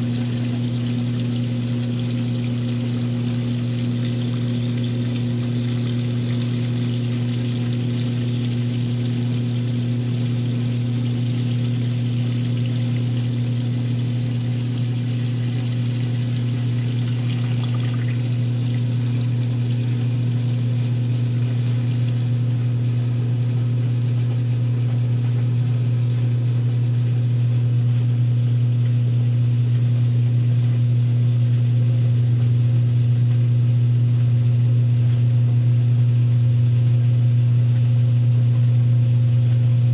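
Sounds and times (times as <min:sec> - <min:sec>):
water rushing: 0:00.0 - 0:22.2
washing machine motor hum: 0:00.0 - 0:39.9.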